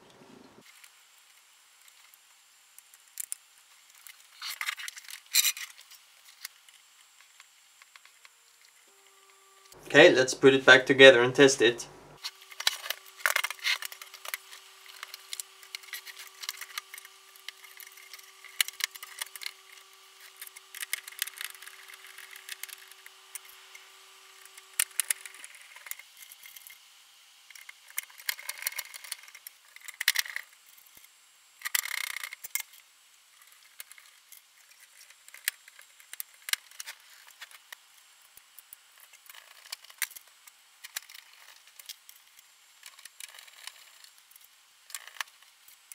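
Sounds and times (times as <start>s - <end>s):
faint steady tone: 8.7s - 12.2s.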